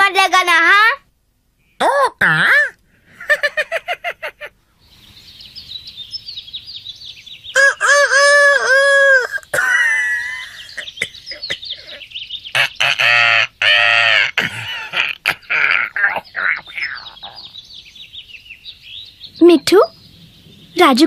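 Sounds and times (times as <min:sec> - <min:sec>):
cartoon parrot squawking: 0:01.8 - 0:02.8, 0:10.6 - 0:17.5.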